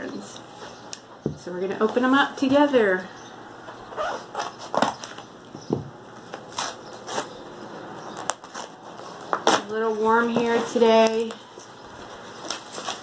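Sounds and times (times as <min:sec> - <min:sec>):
parcel packaging crinkling: 0:08.1 - 0:13.0.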